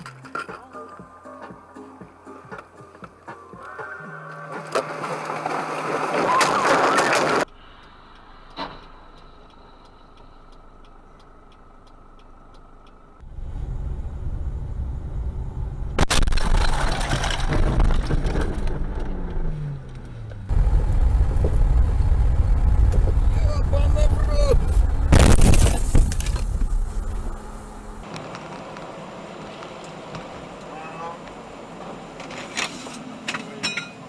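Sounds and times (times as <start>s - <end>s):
car engine and road noise: 0.0s - 34.0s
sharp bang: 25.1s - 26.8s.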